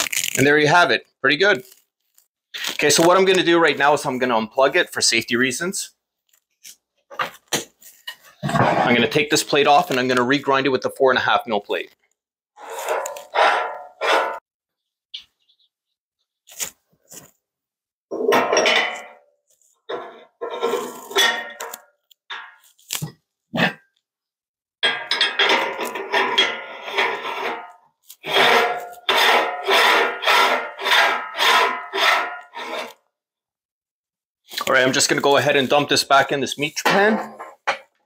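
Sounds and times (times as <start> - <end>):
metal parts clattering and scraping: 7.1 - 10.1, 12.6 - 14.4, 19.9 - 22.9, 24.8 - 32.9.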